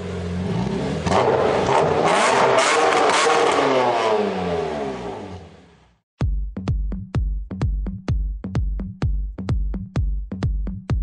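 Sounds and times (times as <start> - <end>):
car engine revving: 0.0 - 5.9.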